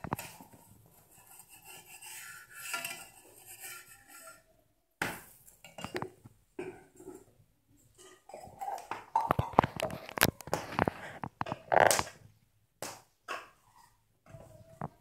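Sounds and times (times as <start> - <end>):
metal spatula scraping iron pan: 0.0 - 4.5.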